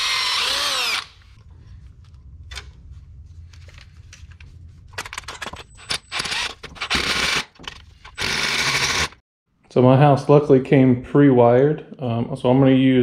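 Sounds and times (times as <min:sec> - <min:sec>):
impact driver driving screws: 0:05.9 - 0:09.2.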